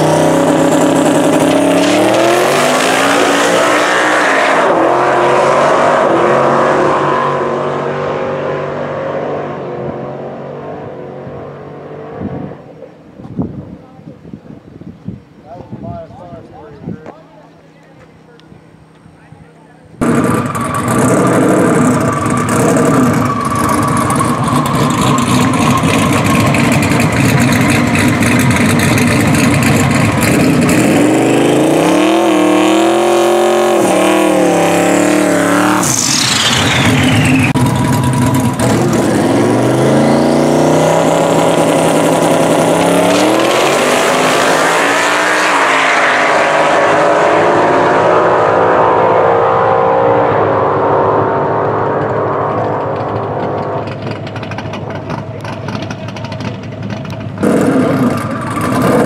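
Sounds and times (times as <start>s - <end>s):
car engine revving: 0.0s - 12.9s, 20.0s - 59.0s.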